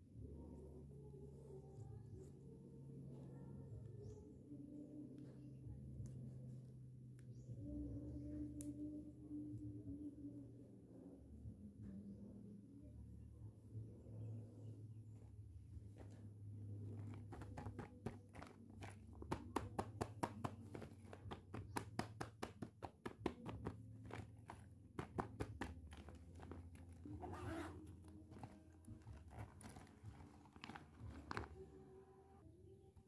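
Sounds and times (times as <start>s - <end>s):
faint low hum: 0.0s - 33.0s
plastic pouch crinkling: 23.4s - 32.0s
toys shifting inside pouch: 23.4s - 32.0s.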